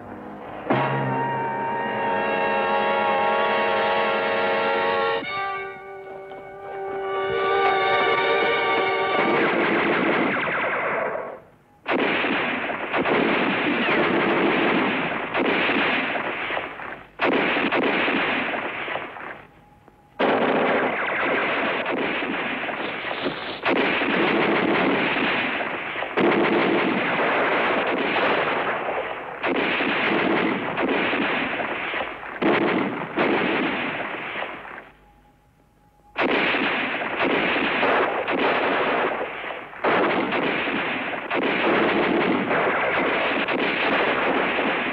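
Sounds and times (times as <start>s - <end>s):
small-arms gunfire barrage: 8.5s - 19.5s, 20.2s - 34.9s, 36.2s - 44.9s.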